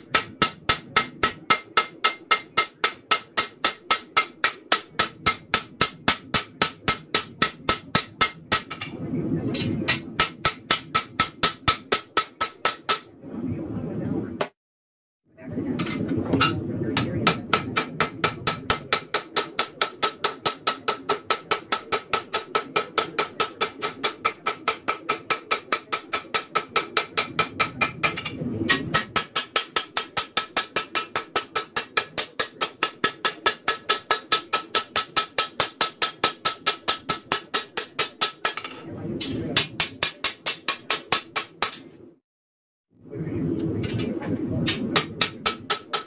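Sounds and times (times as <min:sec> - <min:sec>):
hammer striking blade on anvil: 0:00.0 - 0:08.9.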